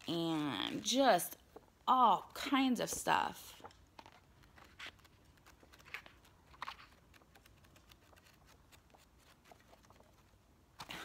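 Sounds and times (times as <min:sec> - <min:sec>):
book pages flipping: 0:00.0 - 0:11.0.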